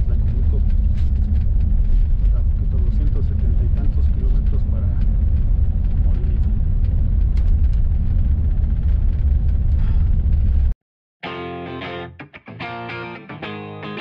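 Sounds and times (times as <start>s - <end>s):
engine and road noise in coach: 0.0s - 10.7s
guitar music: 11.2s - 14.0s.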